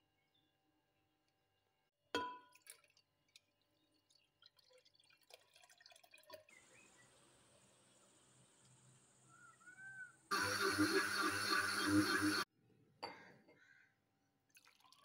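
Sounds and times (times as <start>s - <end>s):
glass clink: 2.2s - 2.5s.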